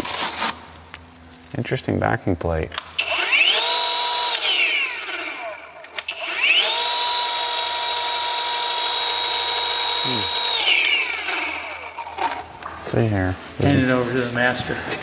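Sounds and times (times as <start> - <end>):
polisher whine: 3.0 - 12.5.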